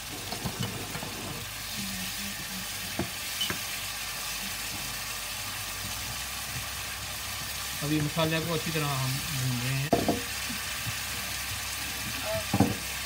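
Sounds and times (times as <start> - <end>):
food sizzling in frying pan: 0.0 - 13.0
wooden spoon knocking on pan: 9.9 - 12.9.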